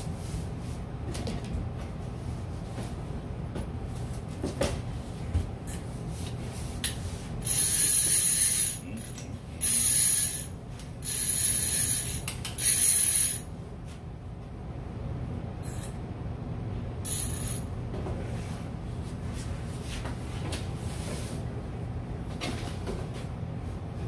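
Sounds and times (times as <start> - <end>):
fishing reel ratchet buzzing: 7.4 - 13.5, 17.1 - 17.6.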